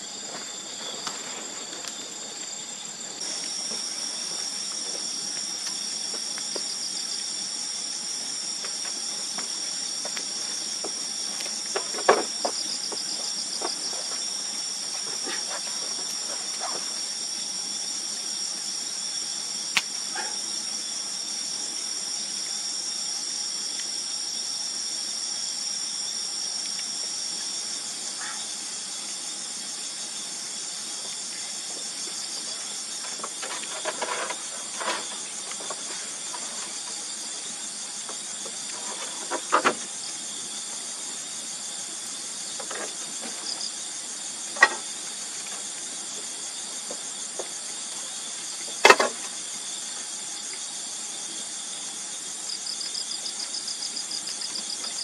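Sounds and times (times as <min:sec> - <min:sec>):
insects chirping: 0:00.0 - 0:55.0
scattered knocks and clicks: 0:44.6 - 0:44.8.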